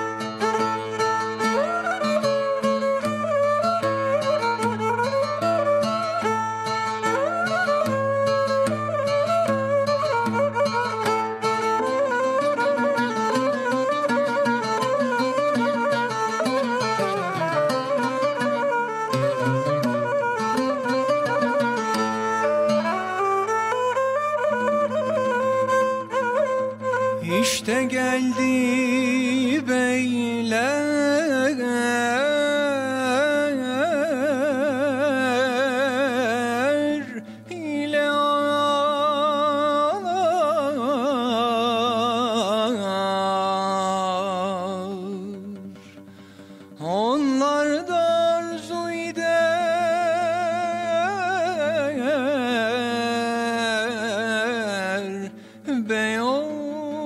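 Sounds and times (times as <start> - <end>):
oud playing: 0.0 - 57.0
man singing ornamented line: 26.7 - 46.0, 46.8 - 57.0.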